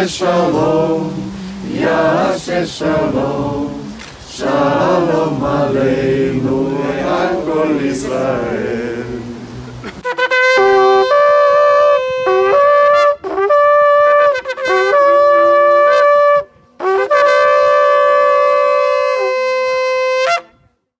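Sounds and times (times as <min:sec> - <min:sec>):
ram's horn blasts: 0:09.8 - 0:20.6.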